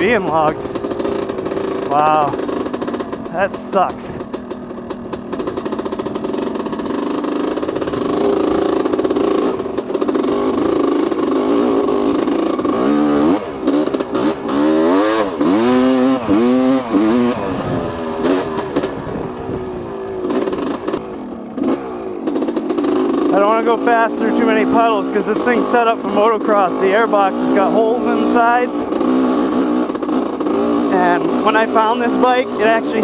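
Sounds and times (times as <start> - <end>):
two-stroke motorcycle engine revving: 0.0 - 33.0.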